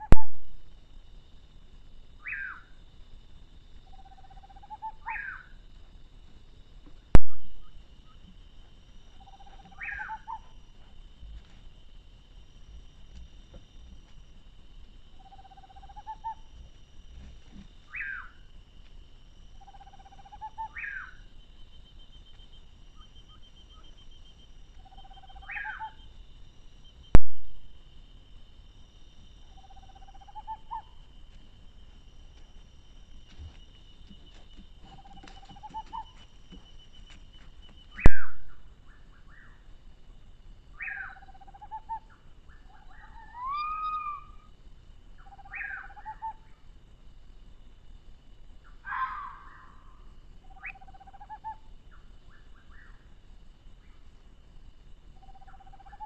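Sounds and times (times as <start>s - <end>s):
high insect drone: 0.0s - 56.0s
animal whistled call: 42.8s - 44.5s.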